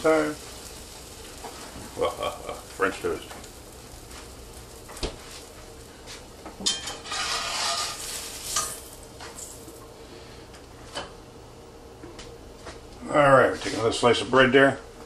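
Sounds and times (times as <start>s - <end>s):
food sizzling in a pan: 0.0s - 10.2s.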